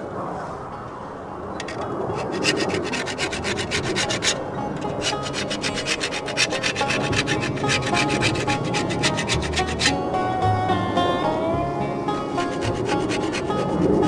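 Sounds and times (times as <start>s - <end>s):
scraper scraping steel blade: 1.6s - 10.0s, 12.4s - 14.0s.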